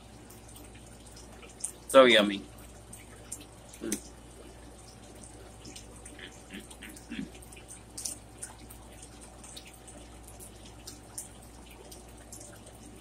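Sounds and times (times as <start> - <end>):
chewing and lip-smacking: 4.9 - 13.0.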